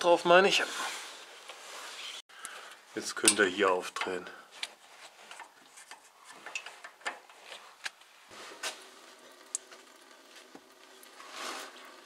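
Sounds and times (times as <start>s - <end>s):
coolant trickling into bucket: 8.3s - 12.0s.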